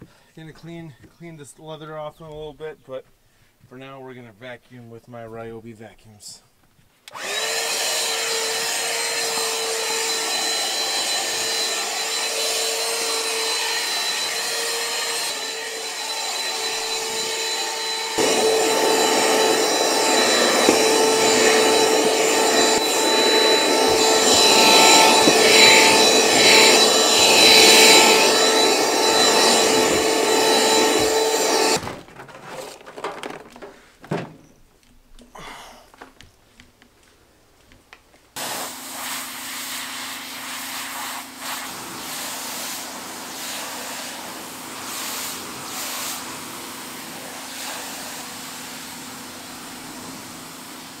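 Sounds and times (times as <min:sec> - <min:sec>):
hand vacuum whining: 0:07.1 - 0:33.8, 0:38.4 - 0:51.0.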